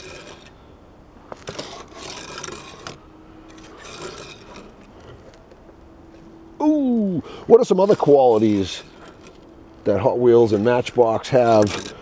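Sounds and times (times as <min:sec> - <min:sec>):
toy car rolling on wood: 0:00.0 - 0:00.6, 0:01.3 - 0:05.5, 0:07.6 - 0:09.5, 0:10.8 - 0:12.0.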